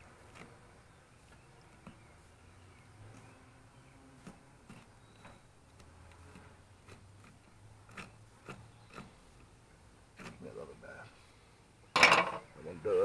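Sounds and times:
knife scraping fish scales: 0:04.1 - 0:09.4.

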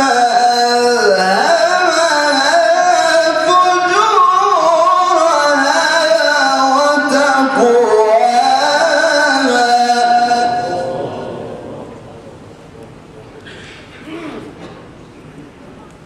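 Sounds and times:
man reciting melodically: 0:00.0 - 0:12.0.

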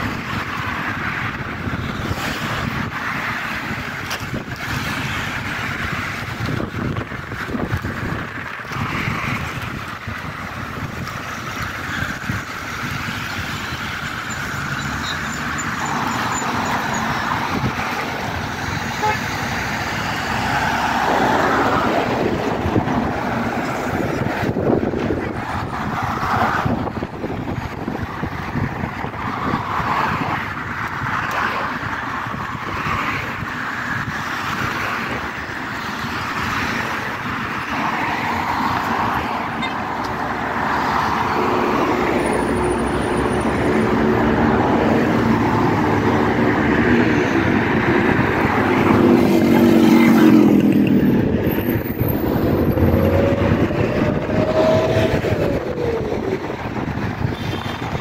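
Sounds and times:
cars driving past: 0:00.0 - 0:58.0
engine hum: 0:36.4 - 0:58.0
rising and falling whine: 0:48.3 - 0:57.2.

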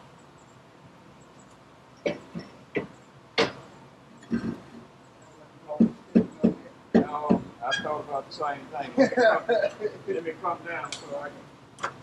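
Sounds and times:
sharp knocks on metal: 0:02.8 - 0:03.6, 0:05.8 - 0:07.5.

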